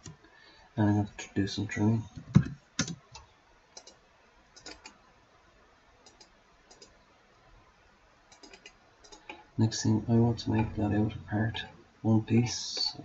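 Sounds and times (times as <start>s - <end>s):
mouse buttons clicking: 6.0s - 6.9s.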